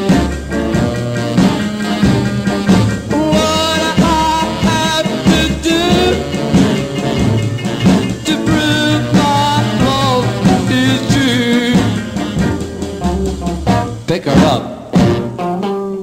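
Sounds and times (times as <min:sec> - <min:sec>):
rock and roll record playing: 0:00.0 - 0:16.0.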